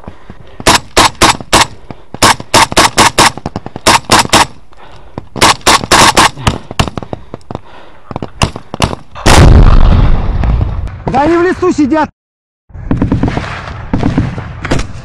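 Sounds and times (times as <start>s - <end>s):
distant gunfire: 0.6s - 4.6s, 5.4s - 7.2s
rifle shots: 0.6s - 4.6s, 5.4s - 7.0s.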